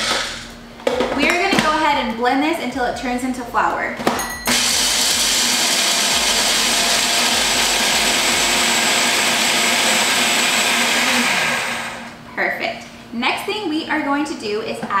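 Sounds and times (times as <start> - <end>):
food processor grinding: 4.5 - 12.2.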